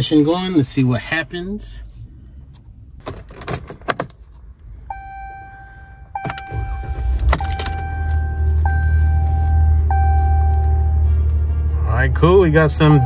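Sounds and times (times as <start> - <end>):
ignition clicks: 2.5 - 5.1, 6.1 - 11.8
truck engine starting and idling: 4.8 - 13.0
dashboard chime: 4.9 - 11.6.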